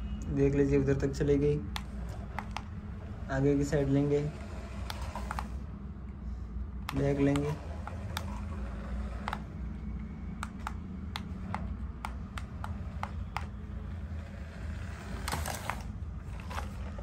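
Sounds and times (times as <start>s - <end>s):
low steady hum: 0.0s - 17.0s
toy controller clicking: 1.7s - 2.8s, 4.8s - 5.6s, 6.9s - 9.5s, 10.4s - 13.7s.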